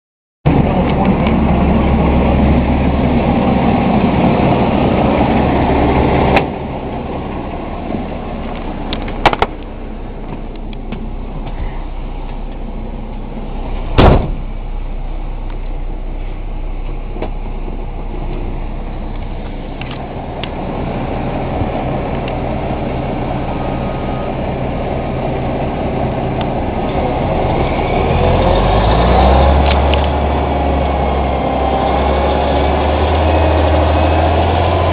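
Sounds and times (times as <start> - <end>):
diesel truck engine running: 0.5 - 34.9
loud knock: 14.0 - 14.4.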